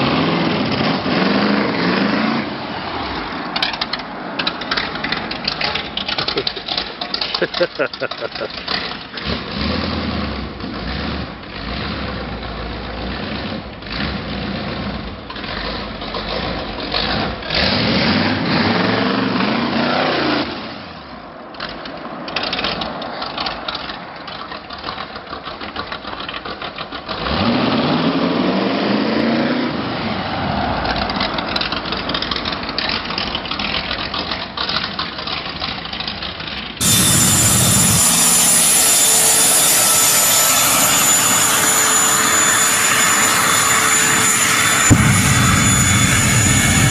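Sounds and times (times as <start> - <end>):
trike engine revving and driving by: 0.0 - 6.3, 8.4 - 20.6, 26.9 - 34.2
jet engine high whine: 36.8 - 46.9.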